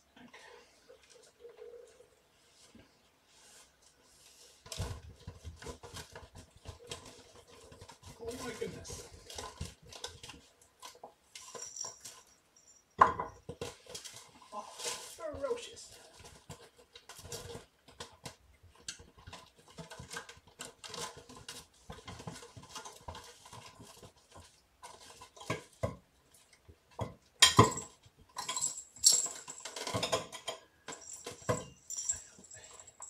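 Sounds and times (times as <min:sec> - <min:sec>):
kittens scrambling on paper: 0:03.4 - 0:11.0, 0:13.5 - 0:25.9
cat toys knocking and clattering: 0:04.6 - 0:12.3, 0:13.0 - 0:14.3, 0:15.9 - 0:33.0.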